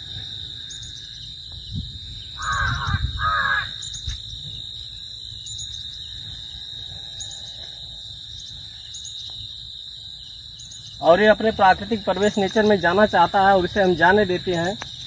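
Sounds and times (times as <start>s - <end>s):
insects chirring: 0.0s - 15.0s
crow cawing: 2.4s - 3.8s.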